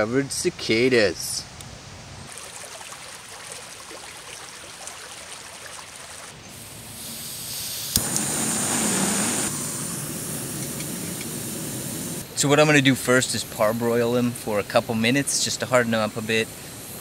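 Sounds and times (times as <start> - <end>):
creek running over rocks: 2.3 - 6.4
water splashing: 2.3 - 6.4
camp stove burner hissing: 6.5 - 17.0.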